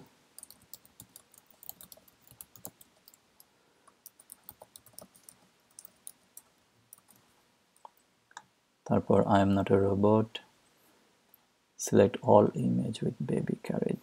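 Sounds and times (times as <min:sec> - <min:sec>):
typing on computer keyboard: 0:00.4 - 0:03.2, 0:03.9 - 0:07.2.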